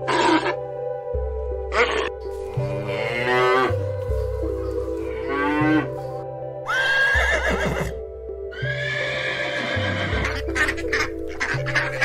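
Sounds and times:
background music: 0.0 - 12.0
cows mooing: 1.7 - 3.8.

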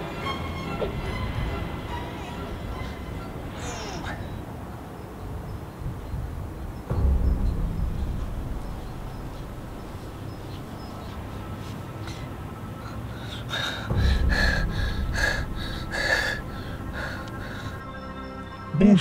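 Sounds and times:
low outdoor rumble: 0.0 - 17.8
boy breathing hard: 11.6 - 17.8.

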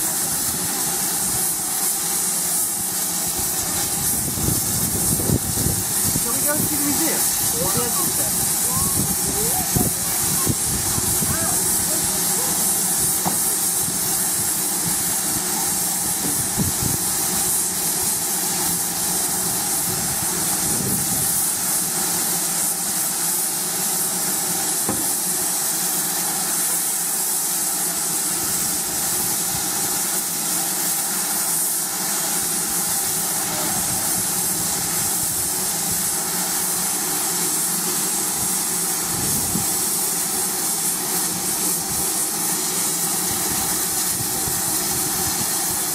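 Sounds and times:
steam hissing from locomotive: 0.0 - 45.9.

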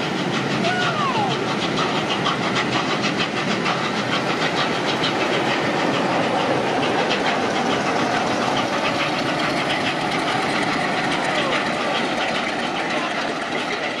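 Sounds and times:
rapid rail clicking: 0.0 - 14.0
train rolling rumble: 0.0 - 14.0.

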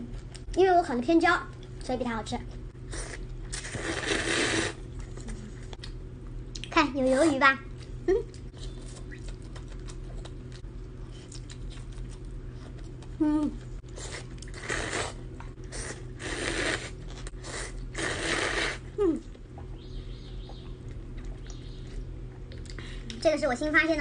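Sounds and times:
slurping noodles: 2.9 - 4.8, 13.9 - 18.9.

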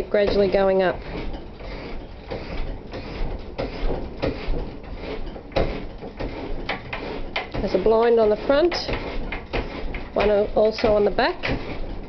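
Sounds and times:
sharp clunks: 0.2 - 12.0.

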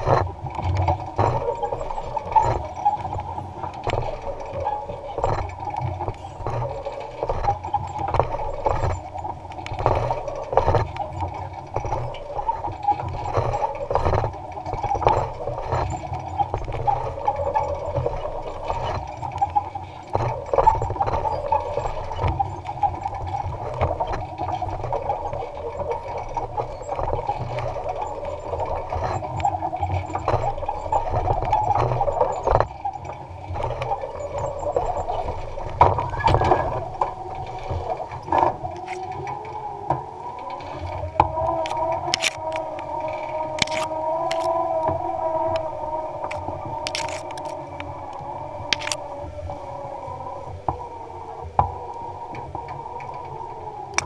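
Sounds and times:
weeder working soil: 0.0 - 39.0, 40.5 - 44.6, 46.2 - 49.0
clicks and rattles: 0.0 - 44.7, 45.5 - 49.1
tractor running: 46.2 - 49.7.

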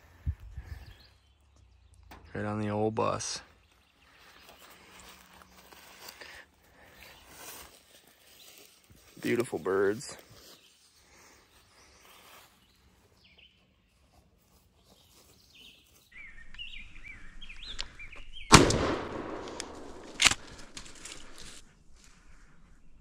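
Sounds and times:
small birds chirping: 0.0 - 18.6
shotgun blast: 18.5 - 20.5.

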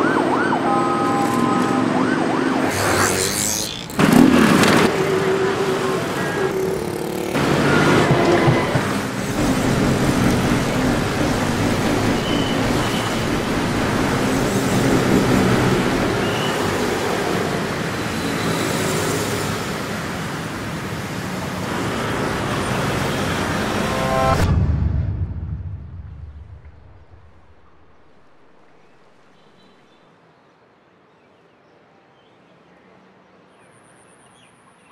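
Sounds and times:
motorcycle and car engines: 1.4 - 28.6.

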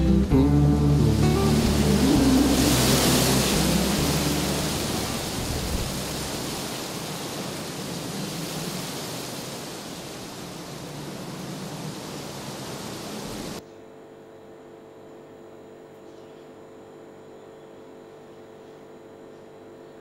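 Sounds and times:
guitar song: 0.0 - 6.8
wind rustling tree leaves: 0.0 - 13.6.

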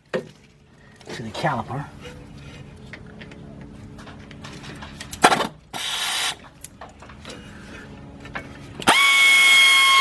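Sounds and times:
power ratchet whining: 8.8 - 10.0.

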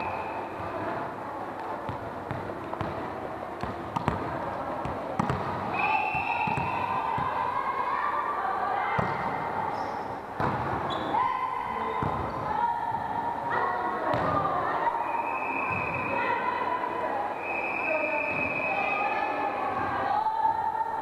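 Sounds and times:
volleyball strikes and thuds: 1.9 - 5.8, 6.4 - 7.4, 9.0 - 9.4, 10.4 - 10.9.

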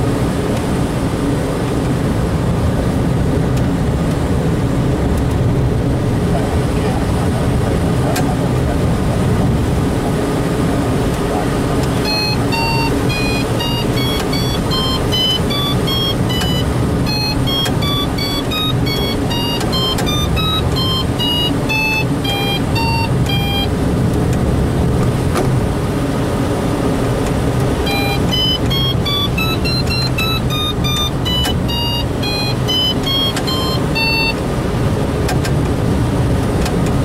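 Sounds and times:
aircraft engine and wind noise: 0.0 - 37.0
electronic beeps: 12.0 - 23.7, 27.8 - 34.4.

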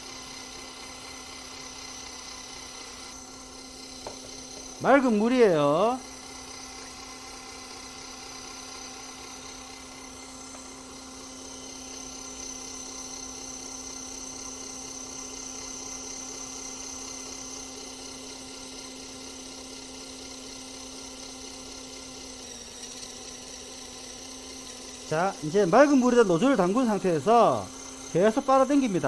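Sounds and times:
electric pump humming and whining: 0.0 - 29.0.

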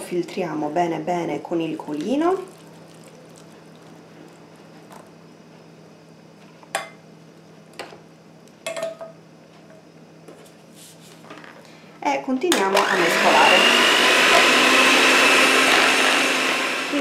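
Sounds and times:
kitchenware clinking and knocking: 8.7 - 9.2.

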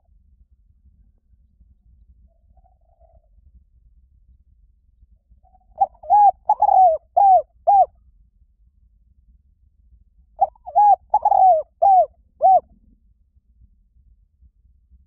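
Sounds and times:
dove cooing: 5.8 - 7.9, 10.4 - 12.7.

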